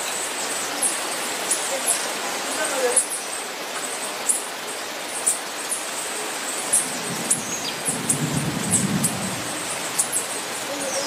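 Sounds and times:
rain falling on foliage: 0.0 - 11.0.

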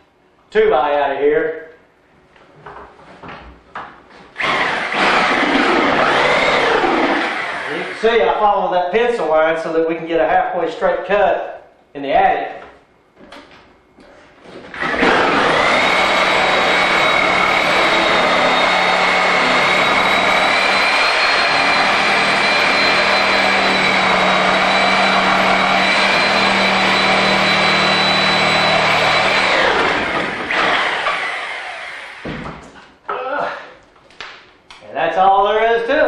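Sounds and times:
reciprocating saw cutting wood: 4.4 - 8.0, 14.8 - 32.2.

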